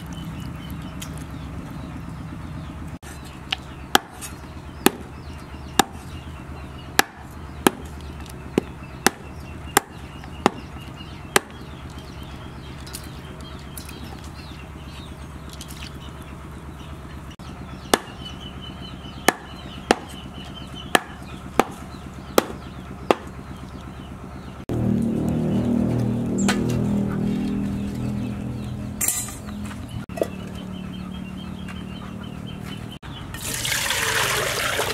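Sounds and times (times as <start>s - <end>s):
cleaver chopping on wooden board: 3.9s - 5.1s, 5.8s - 6.1s, 7.0s - 8.0s, 8.6s - 10.7s, 11.3s - 11.6s, 17.9s - 18.2s, 19.2s - 20.2s, 20.9s - 23.4s.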